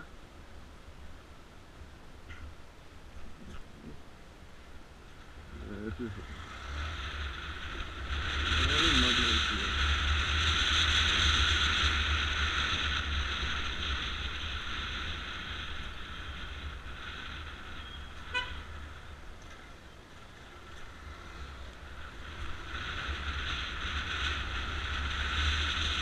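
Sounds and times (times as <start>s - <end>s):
deep engine rumble: 5.0s - 26.0s
wind noise while riding: 6.3s - 26.0s.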